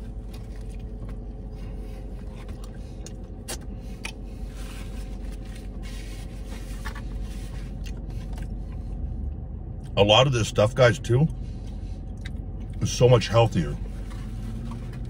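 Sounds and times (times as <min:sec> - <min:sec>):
man chewing: 0:00.0 - 0:09.0, 0:11.5 - 0:12.8
car interior hum: 0:00.0 - 0:15.0.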